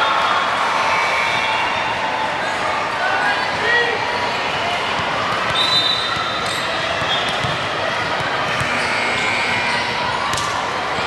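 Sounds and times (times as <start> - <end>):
echoing crowd din in gym: 0.0 - 11.0
shoe squeaks: 5.5 - 7.6.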